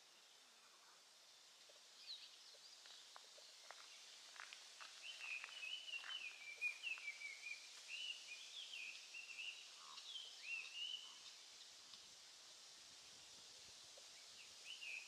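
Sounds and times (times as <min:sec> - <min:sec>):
light ticks: 0:10.6 - 0:12.1.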